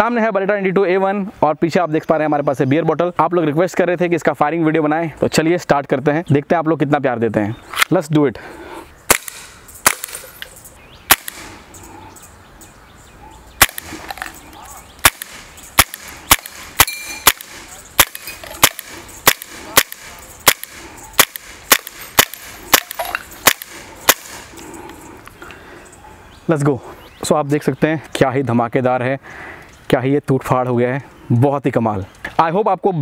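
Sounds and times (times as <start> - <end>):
air pistol shots: 9.1 - 10.3, 11.1 - 11.6, 13.6 - 14.3, 15.0 - 24.5.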